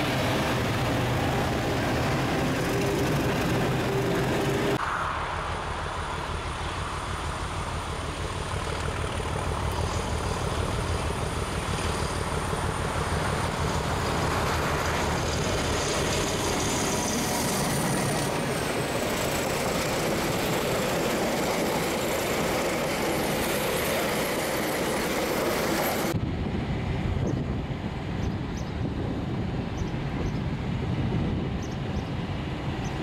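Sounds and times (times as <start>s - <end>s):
diesel locomotive running past: 0.0s - 33.0s.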